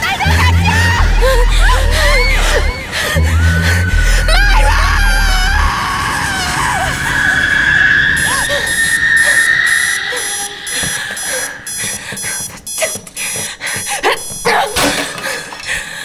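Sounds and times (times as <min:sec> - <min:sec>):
high steady tone: 0:08.2 - 0:14.5
alarm clock beeping: 0:08.2 - 0:14.7.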